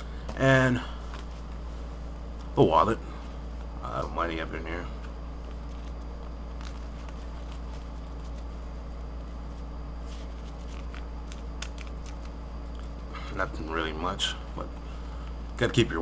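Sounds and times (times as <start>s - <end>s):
steady low hum: 0.0s - 16.0s
wallet rustling and clicking: 5.0s - 13.0s.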